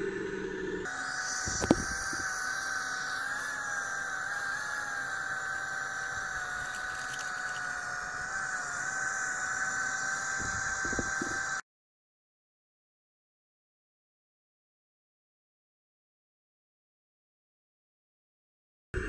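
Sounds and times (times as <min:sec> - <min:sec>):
electric motors whining: 0:00.0 - 0:11.6.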